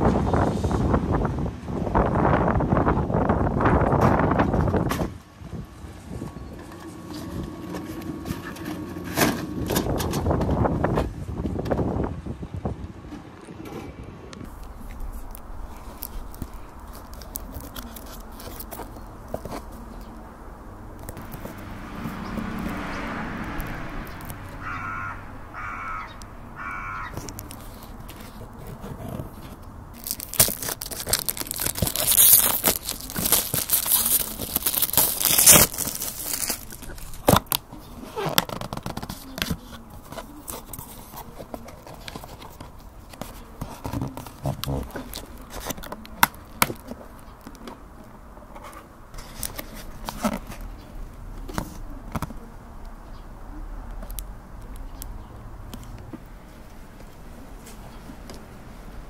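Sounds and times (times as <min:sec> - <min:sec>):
cardboard box clicks and creaks: 0:14.4 - 0:20.2, 0:26.6 - 0:52.5
crow cawing: 0:24.4 - 0:27.4.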